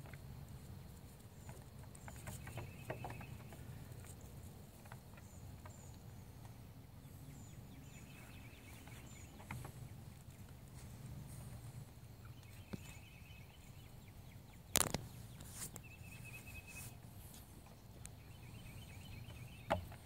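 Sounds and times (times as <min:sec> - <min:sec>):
hooves tapping on wood: 0:01.4 - 0:06.6, 0:08.0 - 0:11.6, 0:17.3 - 0:20.0.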